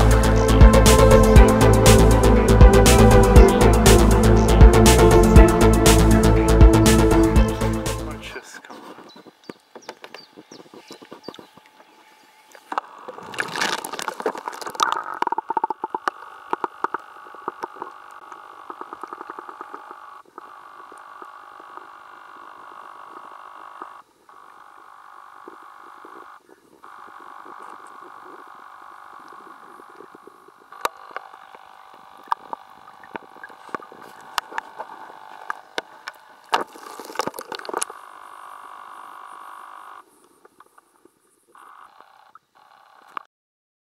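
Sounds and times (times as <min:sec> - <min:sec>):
frogs calling: 0:08.2 - 0:43.2.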